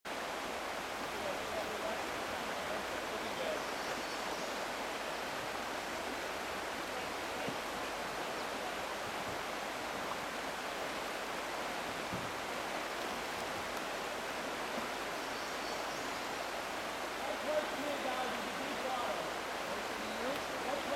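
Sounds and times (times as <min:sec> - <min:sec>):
water rushing over rocks: 0:00.1 - 0:20.9.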